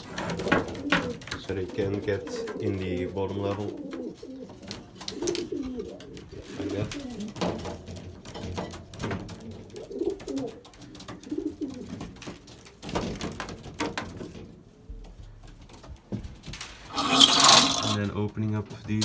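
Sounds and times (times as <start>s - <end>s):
pigeons cooing: 0.0s - 12.5s.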